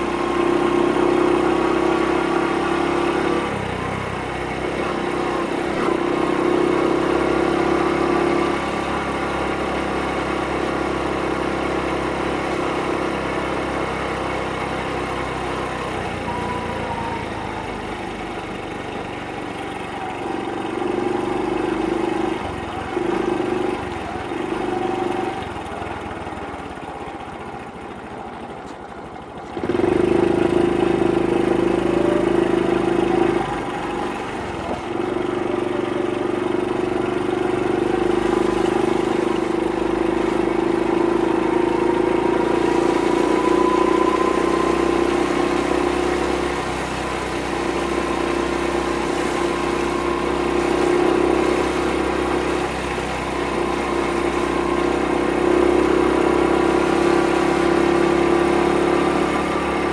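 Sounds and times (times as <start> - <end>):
motorcycle engine and exhaust: 0.0 - 59.9
faint rising whine: 37.8 - 56.2.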